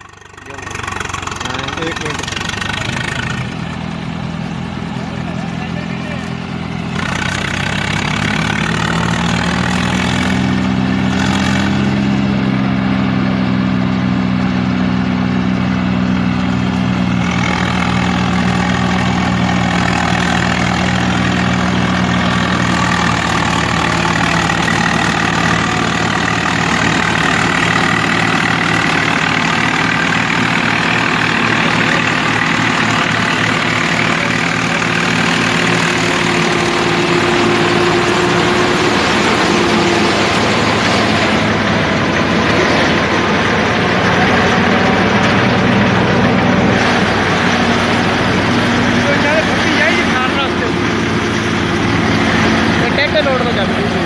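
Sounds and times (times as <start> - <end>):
harsh mechanical noise: 0.0 - 13.9, 15.8 - 54.0
tractor engine revving: 0.0 - 54.0.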